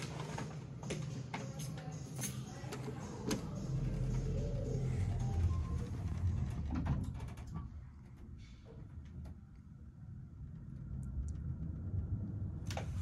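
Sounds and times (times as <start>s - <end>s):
elevator rumble: 0.0s - 13.0s.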